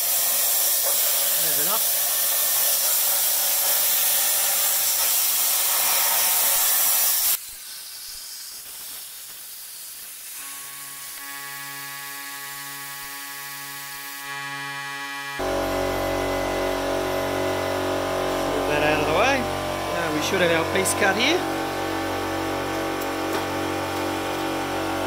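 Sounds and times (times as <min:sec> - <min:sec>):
plasma torch arc hissing: 0:00.0 - 0:11.2, 0:12.2 - 0:14.3, 0:15.4 - 0:25.0.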